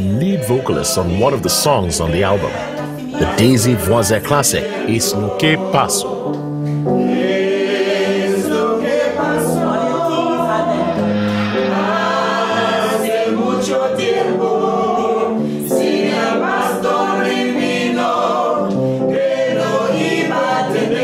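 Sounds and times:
group of voices singing in harmony: 0.0 - 21.0.

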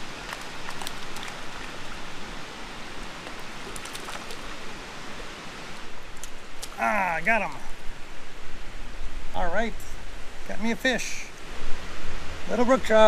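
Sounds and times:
river current rushing: 0.0 - 13.0
fish splashing at surface: 0.2 - 2.0, 3.2 - 4.6.

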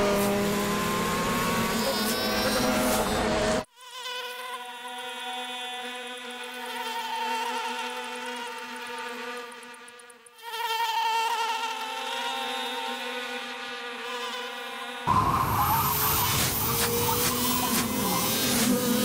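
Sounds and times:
insect wings buzzing: 0.0 - 19.0
louder fuller sound: 15.1 - 19.0.

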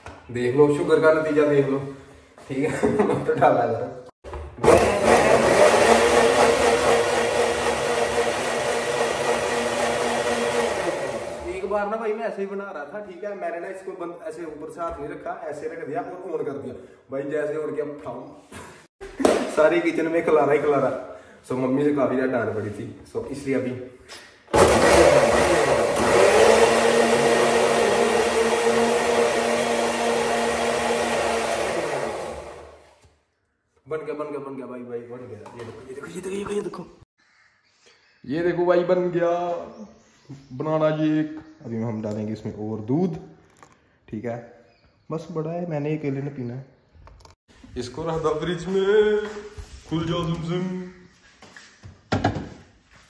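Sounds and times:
mixer grinder motor humming: 4.6 - 11.7, 24.6 - 33.0.

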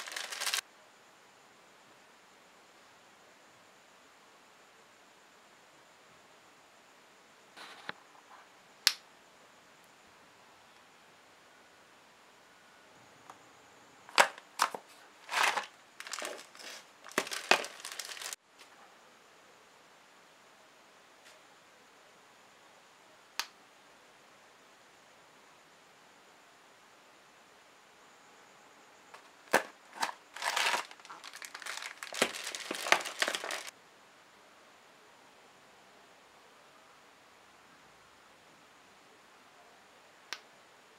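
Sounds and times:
plastic bag crinkling: 0.0 - 0.6, 14.1 - 18.4, 29.5 - 33.7.

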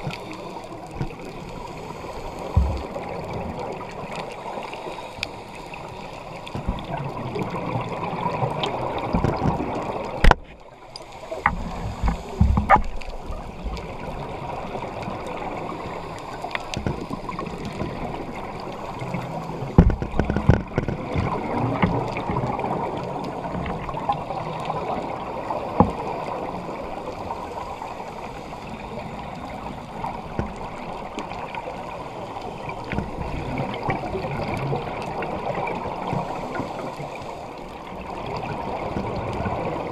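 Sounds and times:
gurgling exhaled bubbles: 0.0 - 4.7, 5.6 - 27.7, 28.3 - 39.9
scuba breathing: 0.0 - 6.8, 10.8 - 19.8, 24.1 - 38.8.

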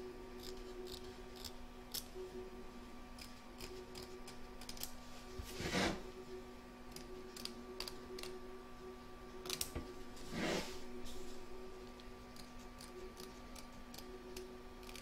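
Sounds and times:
faint steady hum: 0.0 - 15.0
scissors snipping fabric: 3.2 - 4.9, 12.3 - 15.0.

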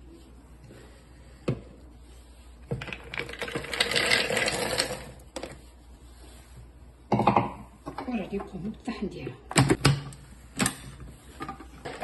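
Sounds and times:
nuts rattling into plastic bowl: 3.0 - 5.1.

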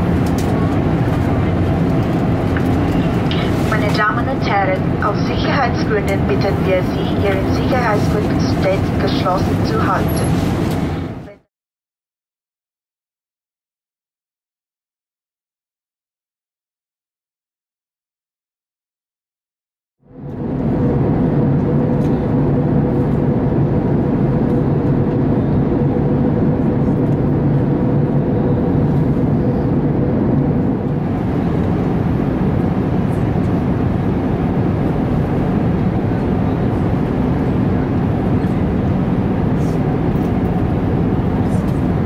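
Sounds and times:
steady hum: 0.0 - 11.4, 20.1 - 42.0
jet engine and airflow in cabin: 0.0 - 11.5, 20.0 - 42.0.

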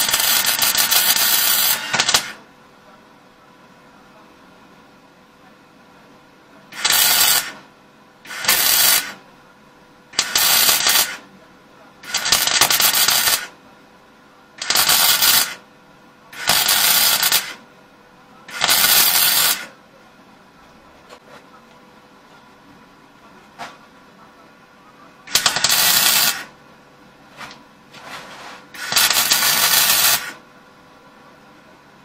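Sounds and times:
welder crackling and sputtering: 0.0 - 2.4, 6.7 - 7.6, 8.2 - 9.2, 10.2 - 11.3, 12.0 - 13.6, 14.6 - 15.6, 16.4 - 17.6, 18.5 - 19.8, 25.3 - 26.6, 28.7 - 30.4.

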